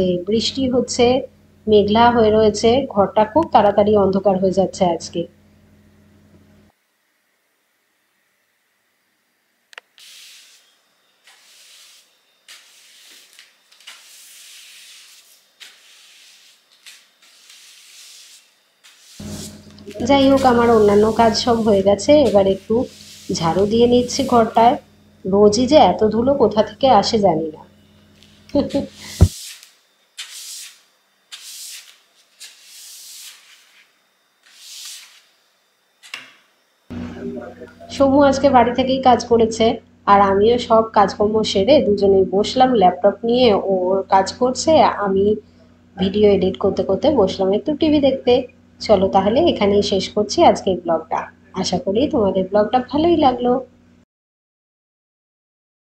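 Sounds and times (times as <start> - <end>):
broom sweeping wooden floor: 10.0 - 24.9, 28.2 - 35.4.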